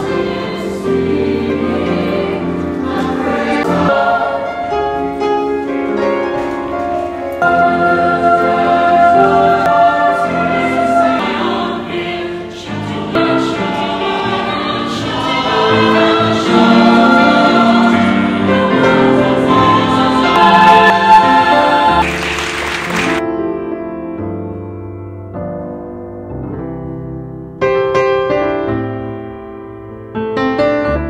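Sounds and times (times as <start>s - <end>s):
mixed choir singing: 0.0s - 5.4s, 7.4s - 23.2s.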